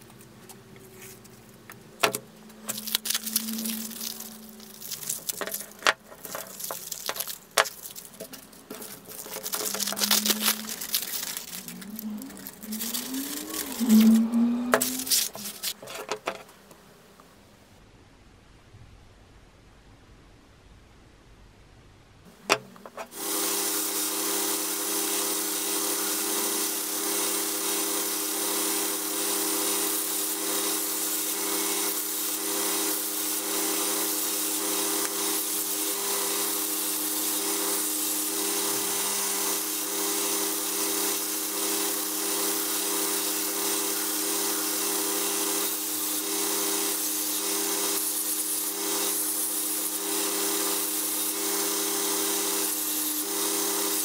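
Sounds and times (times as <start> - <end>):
belt sander running: 2.0 - 15.8, 23.1 - 54.0
sanding hiss: 2.7 - 15.8, 23.0 - 54.0.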